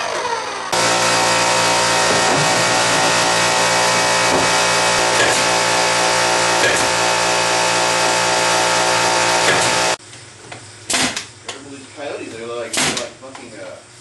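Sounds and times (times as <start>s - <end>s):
electric air compressor humming: 0.0s - 10.0s.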